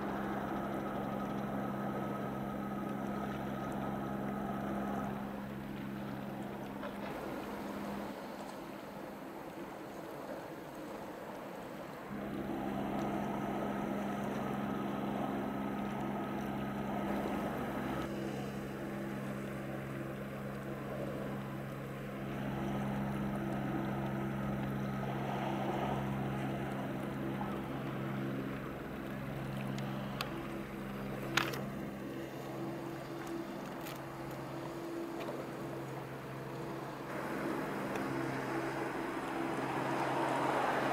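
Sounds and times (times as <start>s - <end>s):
boat diesel engine droning: 0.0s - 40.9s.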